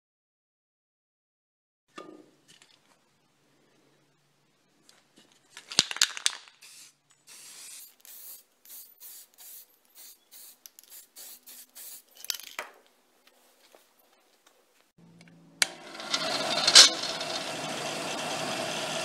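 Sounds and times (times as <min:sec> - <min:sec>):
spray can hissing in bursts: 0:06.5 - 0:12.5
loud rattling clatter: 0:15.6 - 0:19.0.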